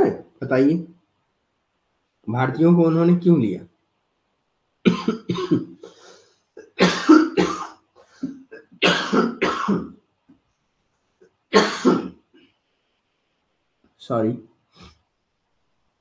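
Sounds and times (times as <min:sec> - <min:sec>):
man coughing: 0:04.9 - 0:09.9, 0:11.6 - 0:12.1.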